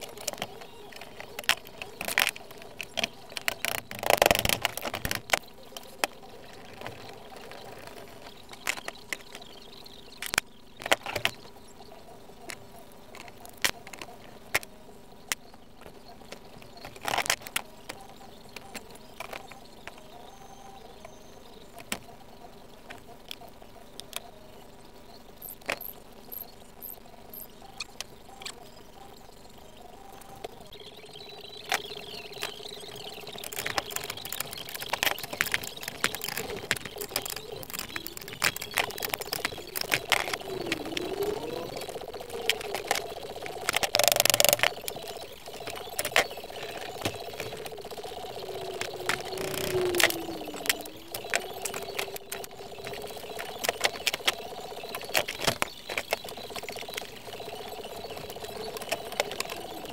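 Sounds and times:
faint steady hum: 0.0s - 59.9s.

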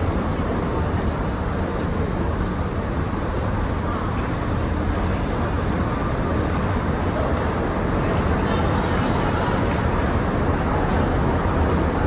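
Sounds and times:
streetcar rumbling along track: 0.0s - 12.0s.

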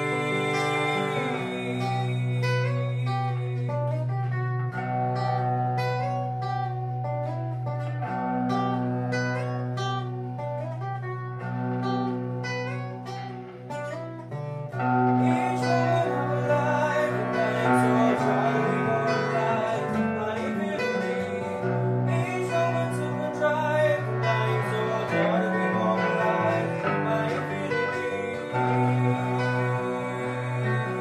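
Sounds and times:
person singing: 0.0s - 5.8s, 14.3s - 31.0s
picked acoustic guitar: 0.0s - 31.0s.

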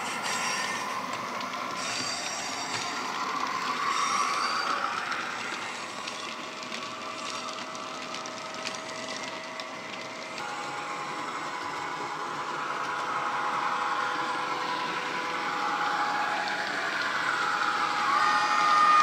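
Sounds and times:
model wagon wheels clicking: 0.0s - 10.4s
diesel locomotive engine hum: 0.0s - 19.0s.

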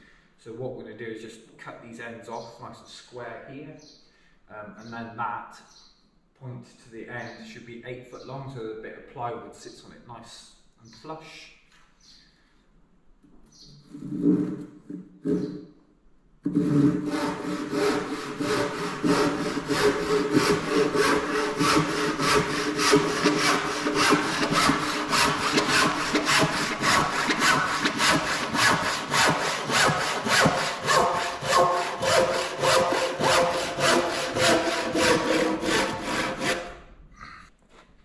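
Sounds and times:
handsaw cutting timber: 16.5s - 36.8s.

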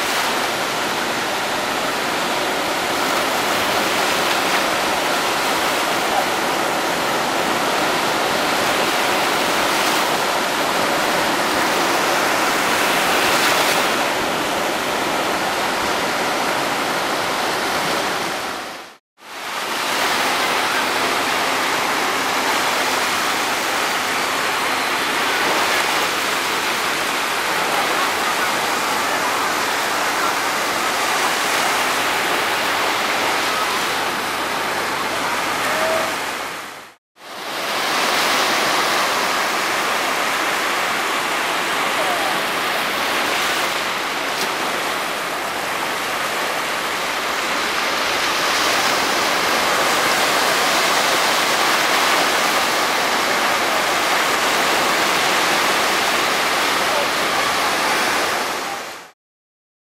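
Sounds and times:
waves washing up a beach: 0.0s - 59.2s.

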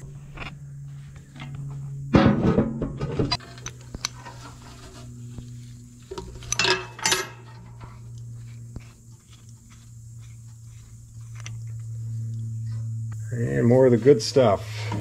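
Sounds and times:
low hum: 0.0s - 15.0s
squeaky metal scrapes: 3.2s - 5.4s
metal fitting clinking: 6.1s - 7.9s.

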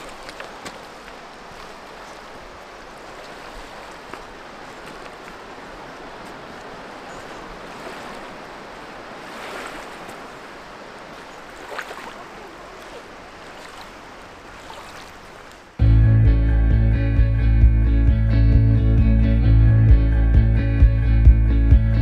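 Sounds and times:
river water flowing and lapping: 0.0s - 15.8s.

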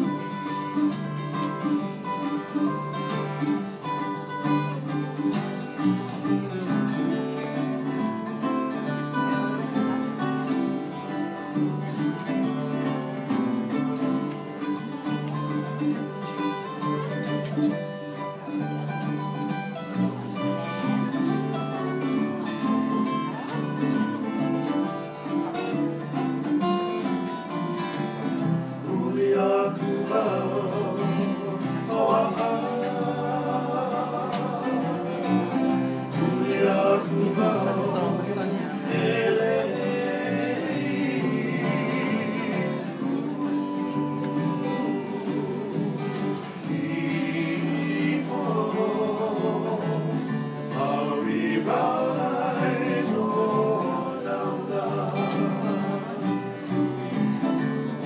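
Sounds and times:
acoustic guitars strummed and picked: 0.0s - 58.0s
voices singing in harmony: 28.0s - 57.2s.

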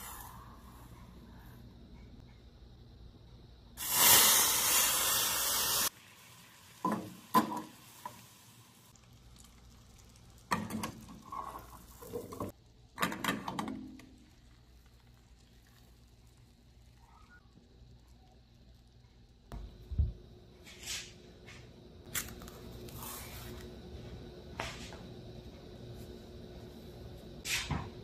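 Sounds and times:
caramel hissing sizzle: 3.8s - 12.6s, 14.1s - 19.4s
caramel bubbling: 5.8s - 13.0s, 14.0s - 19.5s.

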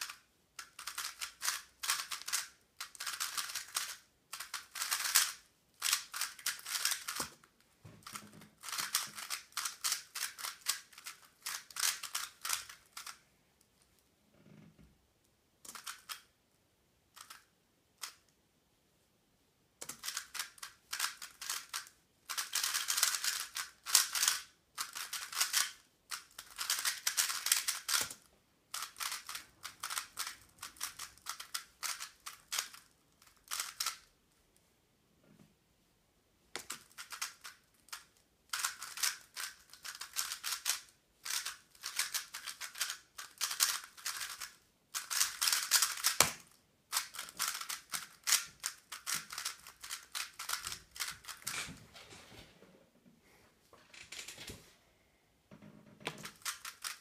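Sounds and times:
speed cube clicking: 0.0s - 7.4s, 8.0s - 13.2s, 15.7s - 16.3s, 17.1s - 18.2s, 19.8s - 34.1s, 36.6s - 51.5s, 56.1s - 57.0s.

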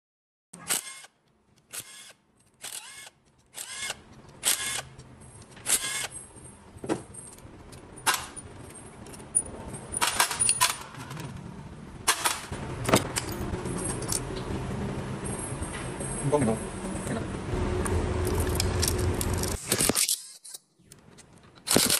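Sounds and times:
metallic clinks and rattles: 6.1s - 11.3s.

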